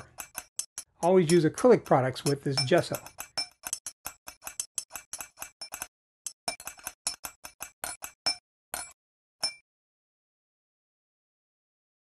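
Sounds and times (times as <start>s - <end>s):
metal knife scraping glass bowl: 0.0s - 9.6s.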